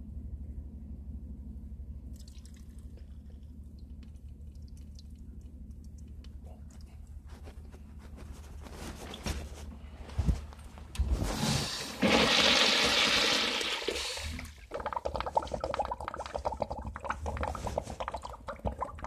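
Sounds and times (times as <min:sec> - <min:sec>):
low hum: 0:00.0 - 0:12.0
faint water drips: 0:02.1 - 0:07.2
rustling: 0:06.5 - 0:12.1.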